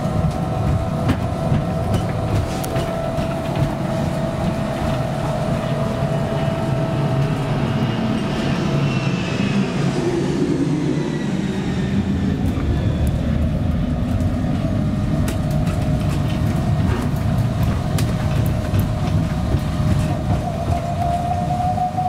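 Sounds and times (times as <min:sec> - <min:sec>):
jet airliner engine whine: 0:00.0 - 0:22.0
rubber tyres rumbling: 0:12.4 - 0:22.0.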